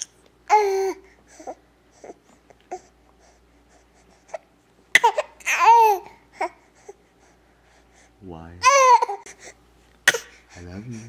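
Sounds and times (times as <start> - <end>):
baby vocalizing: 5.0 - 7.0, 8.6 - 11.0.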